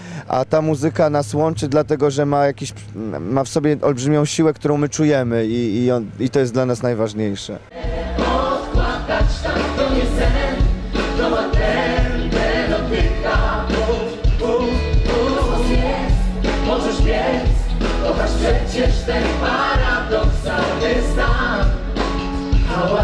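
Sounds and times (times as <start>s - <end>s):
vocal group singing in harmony: 7.7s - 23.0s
band with heavy bass and beat: 7.9s - 23.0s.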